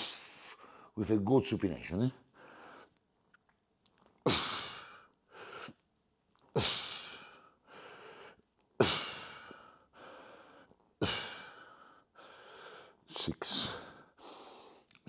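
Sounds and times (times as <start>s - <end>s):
man breathing hard: 2.3s - 3.0s, 6.5s - 14.9s.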